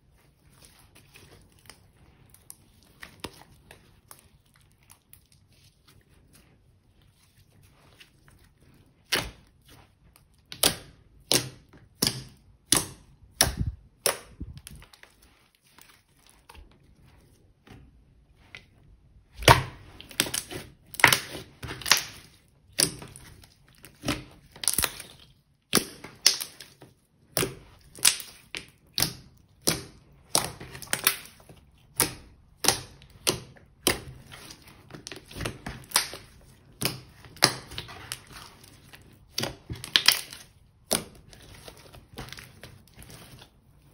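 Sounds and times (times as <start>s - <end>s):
sticky slime clicks and pops: 10.5s - 14.8s, 27.3s - 34.0s.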